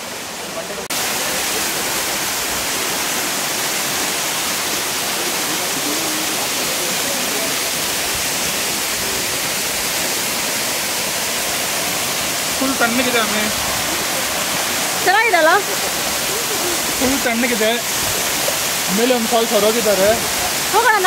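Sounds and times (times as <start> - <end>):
small waterfall splashing: 0.0 - 21.0.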